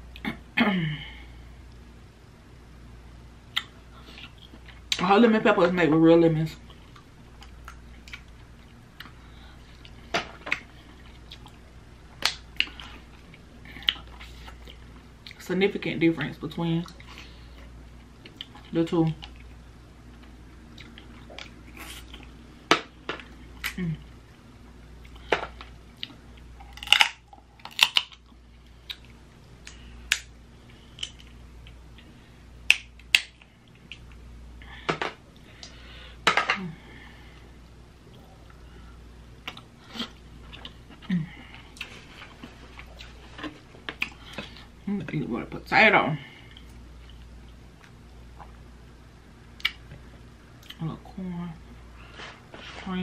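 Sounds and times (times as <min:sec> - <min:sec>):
shells cracking and snapping: 0:25.3 - 0:28.3, 0:28.9 - 0:30.3, 0:32.6 - 0:34.1
crab shell cracking: 0:26.6 - 0:28.2.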